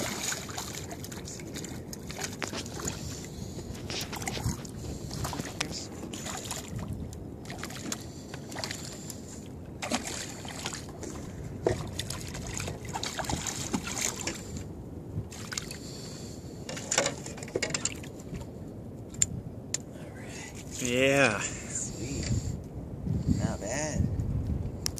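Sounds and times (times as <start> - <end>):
sharp splashes: 0.0 - 3.0, 9.8 - 10.9, 11.7 - 14.4
water sloshing: 0.0 - 15.8
fish thrashing at surface: 9.8 - 10.9.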